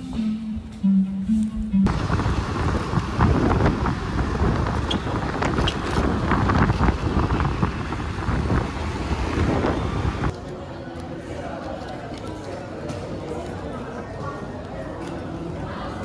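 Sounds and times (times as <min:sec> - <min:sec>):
road and traffic rumble: 0:01.8 - 0:12.4
wind buffeting microphone: 0:01.9 - 0:10.3.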